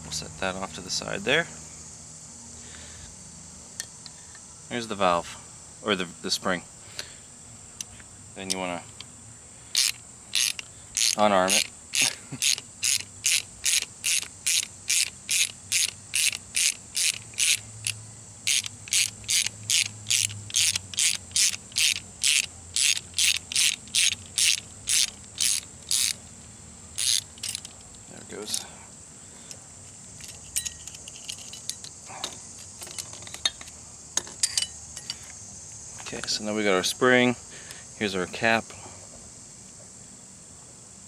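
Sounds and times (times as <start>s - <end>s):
ratcheting tool clicking: 9.7s - 26.2s, 27.0s - 28.7s, 30.2s - 32.0s.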